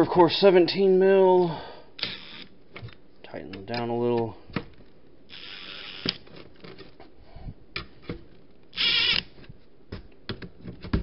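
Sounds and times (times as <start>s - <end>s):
cordless driver burst: 8.8s - 9.3s.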